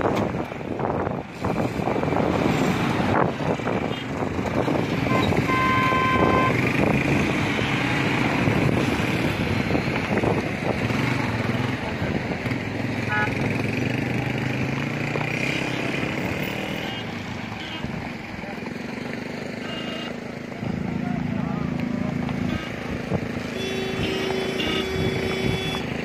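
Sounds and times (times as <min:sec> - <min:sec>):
motorcycle and car engines passing: 0:00.0 - 0:26.0
road noise: 0:00.0 - 0:26.0
vehicle horn: 0:05.0 - 0:06.6, 0:13.1 - 0:13.4, 0:16.5 - 0:18.0, 0:19.6 - 0:20.2, 0:22.4 - 0:25.9.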